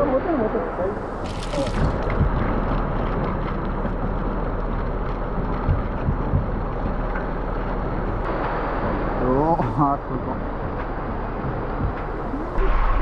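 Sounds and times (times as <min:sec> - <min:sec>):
water gushing through a hose: 0:01.2 - 0:08.3.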